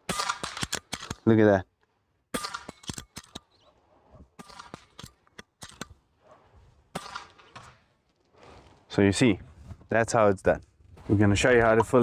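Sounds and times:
air rifle action clicks: 0:00.2 - 0:01.3, 0:02.4 - 0:03.6, 0:04.4 - 0:06.0.

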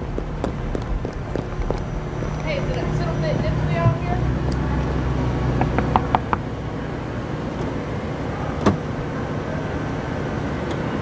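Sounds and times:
car engine idling: 0:00.0 - 0:11.0
knuckles knocking on glass: 0:05.6 - 0:06.4.

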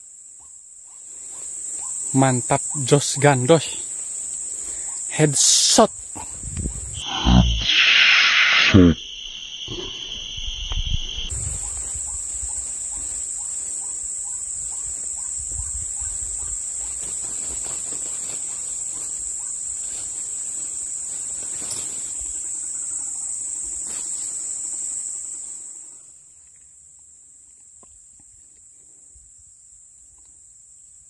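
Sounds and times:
high-pitched insect drone: 0:01.3 - 0:26.7
low buzzing tone: 0:06.5 - 0:11.6
higher buzzing tone: 0:06.6 - 0:11.4.

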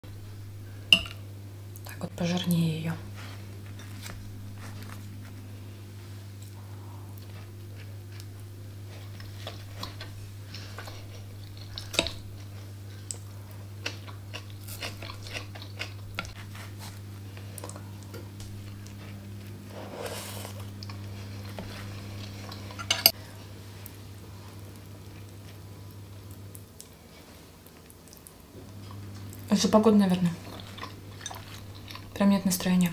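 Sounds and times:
steady low hum: 0:00.0 - 0:32.9
toast being bitten and chewed: 0:07.2 - 0:23.2, 0:30.4 - 0:32.2.

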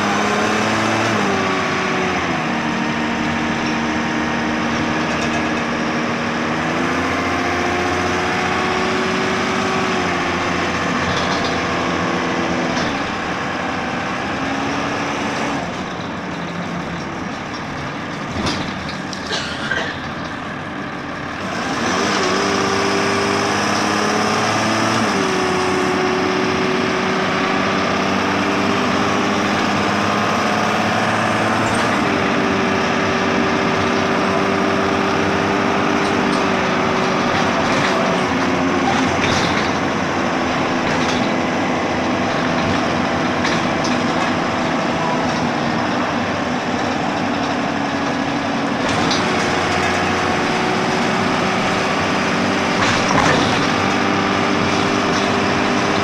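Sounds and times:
bus engine running: 0:00.0 - 0:56.0
drivetrain whine: 0:00.0 - 0:56.0
clicks and knocks: 0:35.8 - 0:45.6, 0:52.7 - 0:55.6.

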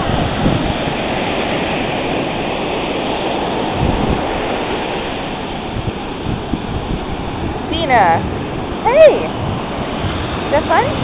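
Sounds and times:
ocean surf breaking: 0:00.0 - 0:11.0
wind gusting on microphone: 0:00.0 - 0:11.0.

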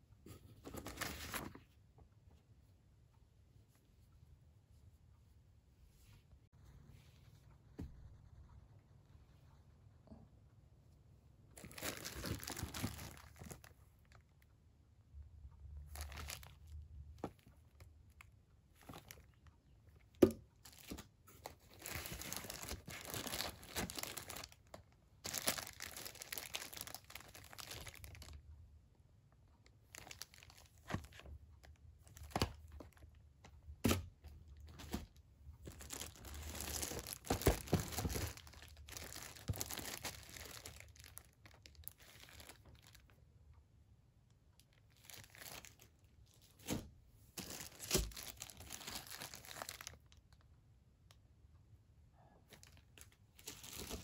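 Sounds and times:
plastic bags crinkling: 0:11.6 - 0:14.2, 0:15.9 - 0:16.6, 0:20.6 - 0:28.4, 0:29.9 - 0:31.3, 0:34.6 - 0:43.1, 0:44.9 - 0:45.9, 0:47.4 - 0:50.2, 0:52.6 - 0:54.0.

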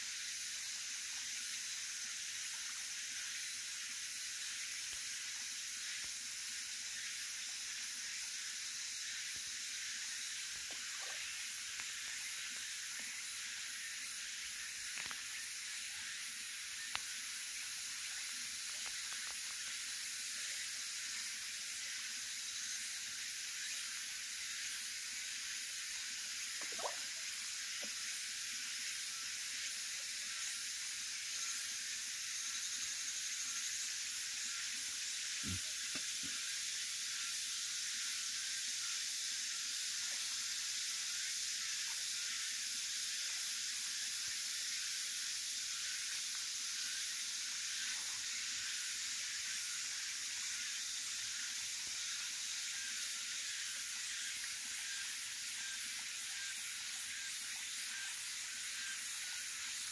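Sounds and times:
steady high hiss: 0:00.0 - 0:59.9.

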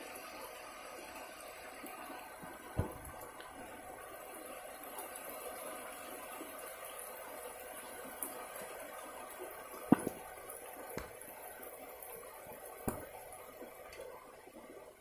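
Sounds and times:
rain on leaves and grass: 0:00.1 - 0:14.3
drip-like taps: 0:02.8 - 0:03.6, 0:09.9 - 0:11.7, 0:12.9 - 0:13.3.

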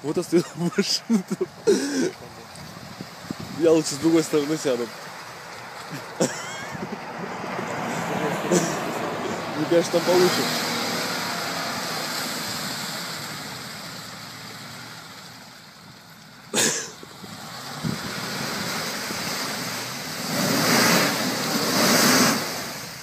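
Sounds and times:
wind rushing: 0:02.6 - 0:04.0, 0:17.2 - 0:22.8.

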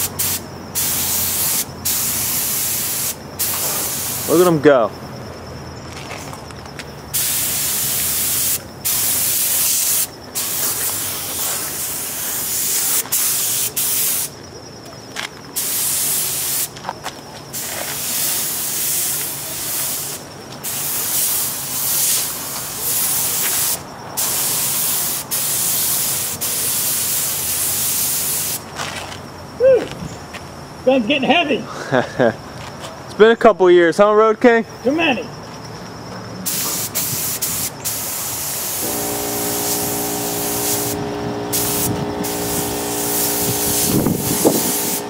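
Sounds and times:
air spray gun hissing: 0:00.0 - 0:04.5, 0:07.1 - 0:14.3, 0:15.6 - 0:16.7, 0:17.6 - 0:28.6, 0:36.5 - 0:45.0.

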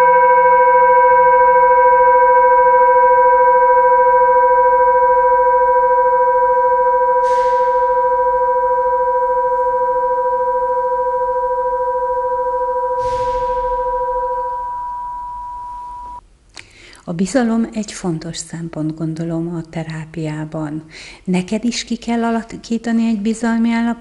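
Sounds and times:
singing bowl ringing: 0:00.0 - 0:16.2.

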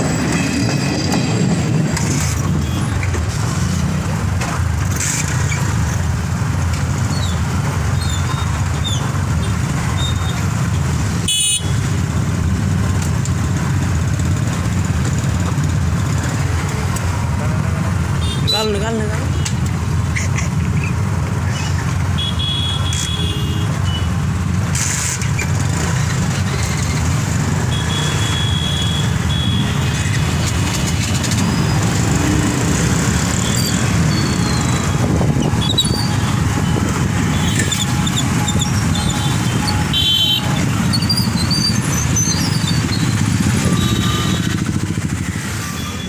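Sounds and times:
motorcycle engines droning: 0:11.8 - 0:46.0.

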